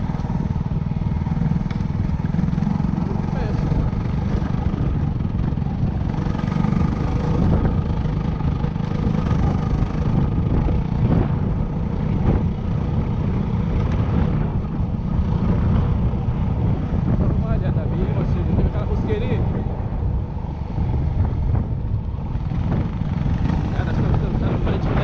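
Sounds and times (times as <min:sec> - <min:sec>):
motorcycle engine running: 0:00.0 - 0:25.0
wind: 0:00.0 - 0:25.0.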